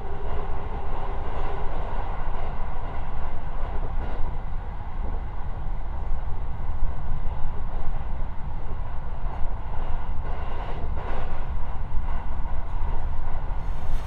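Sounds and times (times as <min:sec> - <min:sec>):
train wheels rumbling on rail: 0:00.0 - 0:14.0
train running hiss: 0:13.6 - 0:14.0.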